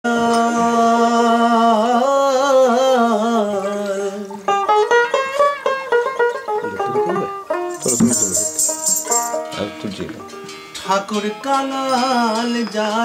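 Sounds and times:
plucked string instrument run: 4.5s - 13.0s.

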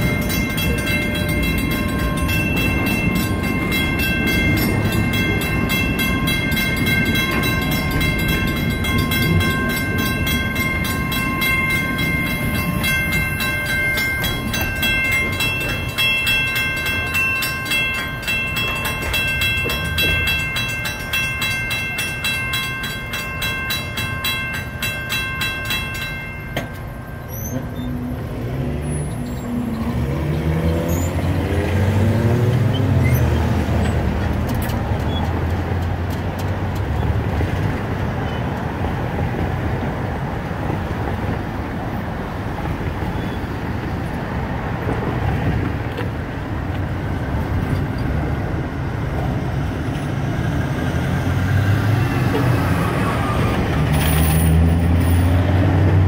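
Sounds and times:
crossing bell ringing rapidly: 0.0s - 31.7s
steady traffic noise: 0.0s - 56.0s
vehicles pulling away: 27.3s - 56.0s.

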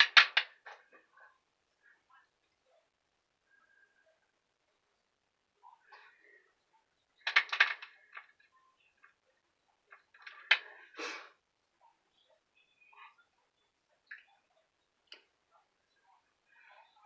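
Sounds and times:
small hard objects clicking: 0.0s - 0.8s, 7.2s - 8.4s.

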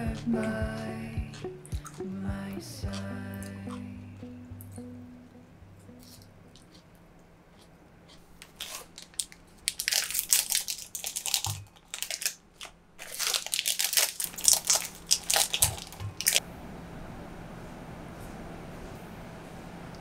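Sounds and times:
plastic wrappers crinkling: 8.1s - 16.4s.

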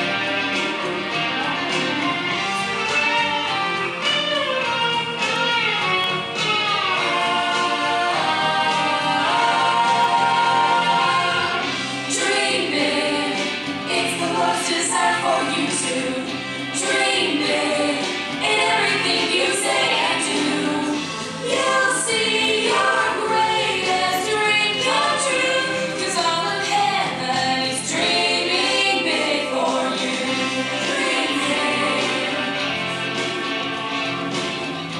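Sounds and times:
group of voices singing pop song: 6.8s - 34.1s.

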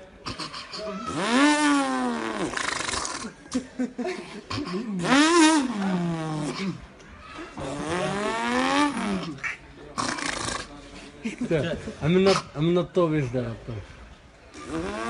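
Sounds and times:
man imitating car engine revving: 0.3s - 3.4s, 4.5s - 6.8s, 7.6s - 9.5s, 14.6s - 15.0s.

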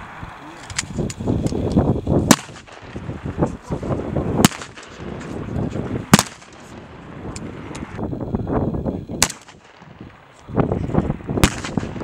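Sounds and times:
faint distant rifle shots: 2.2s - 3.1s, 4.4s - 5.2s, 6.1s - 7.0s, 9.2s - 10.3s, 11.4s - 12.0s
rifle shots cracking: 2.2s - 3.1s, 4.4s - 5.3s, 6.0s - 7.5s, 9.2s - 10.3s, 11.4s - 12.0s.

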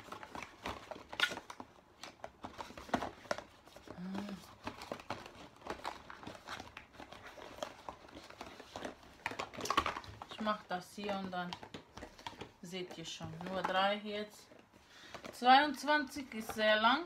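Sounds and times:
cardboard crinkling and scraping: 0.0s - 16.8s.

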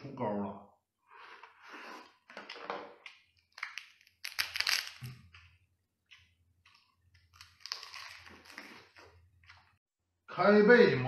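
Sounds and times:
crab shell cracking: 3.4s - 5.1s, 7.2s - 8.8s.

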